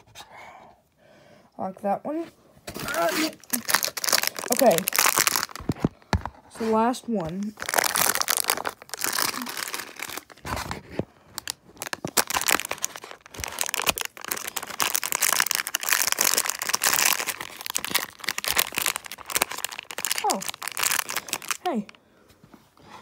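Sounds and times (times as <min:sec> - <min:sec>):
plastic packet crinkling and tearing: 0:02.7 - 0:06.3, 0:07.2 - 0:22.0.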